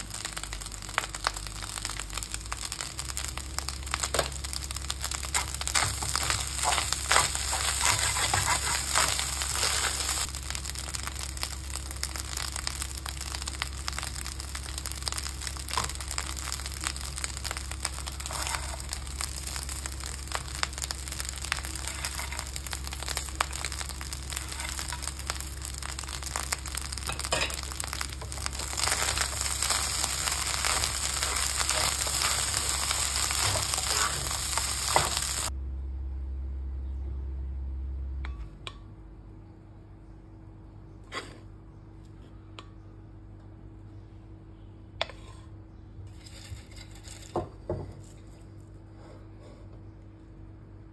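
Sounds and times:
rice sizzling in a pan: 0:00.0 - 0:35.6, 0:41.1 - 0:41.4, 0:45.0 - 0:45.5, 0:46.1 - 0:48.6
wooden spatula scraping a pan: 0:05.3 - 0:10.3, 0:18.0 - 0:19.0, 0:21.6 - 0:22.6, 0:41.1 - 0:41.5, 0:45.0 - 0:47.4.

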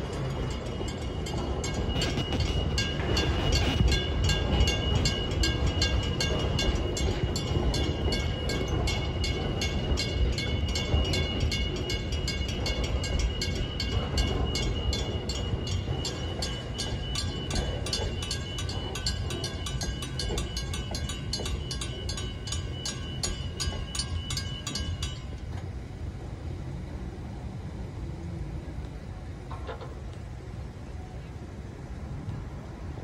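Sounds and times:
level crossing warning bell: 0:00.0 - 0:26.2
freight train rumbling past: 0:00.0 - 0:29.5.

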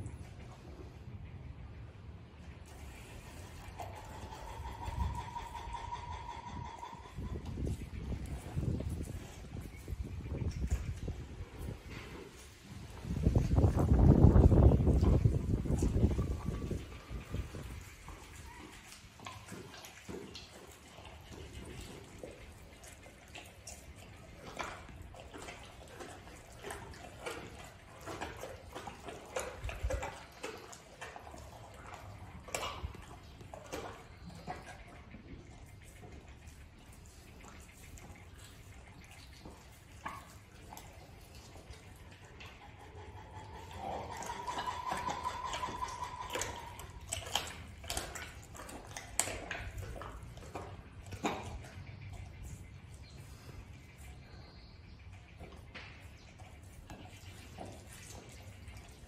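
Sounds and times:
tiger chewing and tearing meat: 0:02.6 - 0:59.0
jaws crunching clicks: 0:42.4 - 0:52.5.

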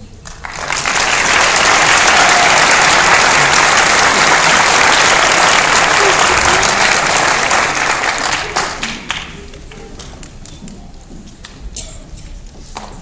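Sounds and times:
audience applauding: 0:00.2 - 0:10.6.

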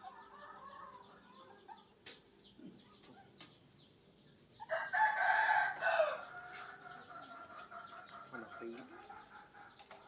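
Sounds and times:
rooster crowing: 0:04.7 - 0:06.6.

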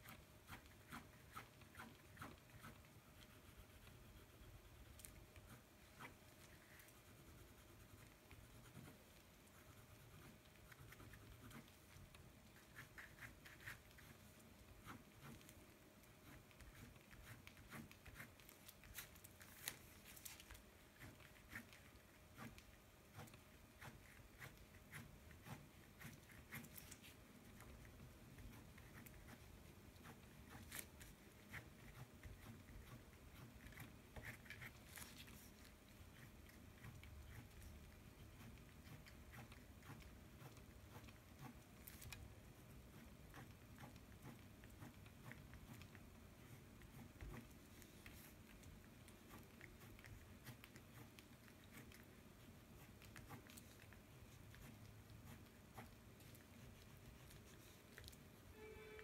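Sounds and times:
fingertip rubbing on paper: 0:00.0 - 0:48.4.

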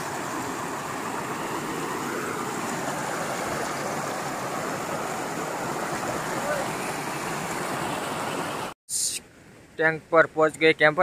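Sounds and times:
river rushing over waterfall: 0:00.0 - 0:08.8.

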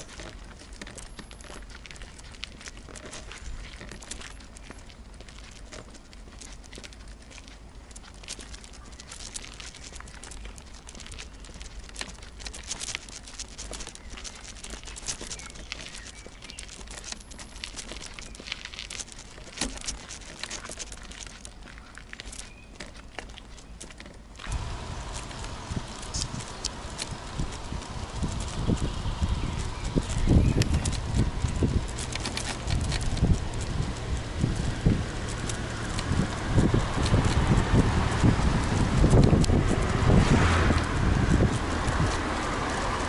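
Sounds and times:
wicker bicycle basket creaking: 0:00.0 - 0:43.0
low rumble: 0:24.4 - 0:43.0.

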